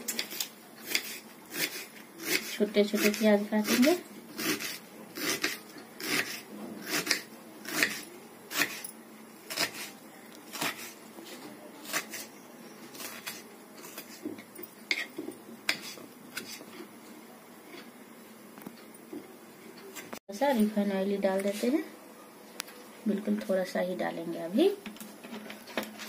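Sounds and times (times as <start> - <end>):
knife chopping onion: 0.0 - 8.8, 9.5 - 11.0, 11.8 - 12.3, 12.9 - 14.3, 14.9 - 16.6.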